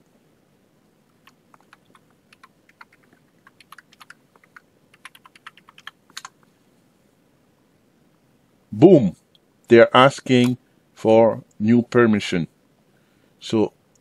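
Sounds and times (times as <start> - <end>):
computer keyboard typing: 1.2 - 6.4.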